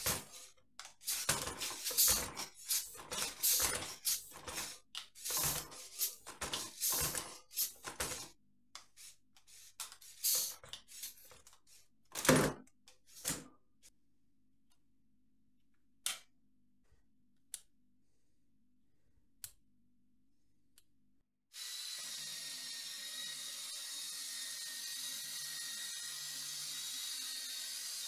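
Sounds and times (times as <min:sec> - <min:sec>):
pneumatic hissing bursts: 0:00.0 - 0:07.9, 0:09.0 - 0:11.2.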